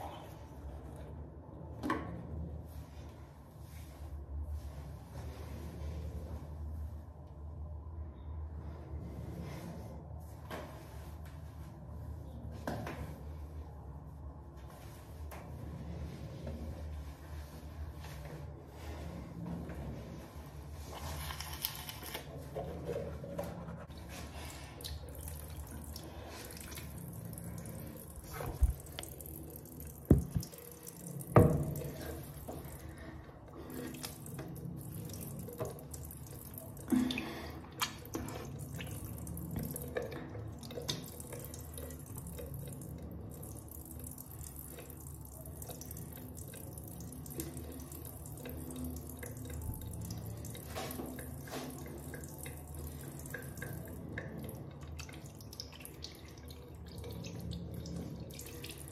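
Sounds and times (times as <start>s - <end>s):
tap running into basin: 28.3s - 32.7s.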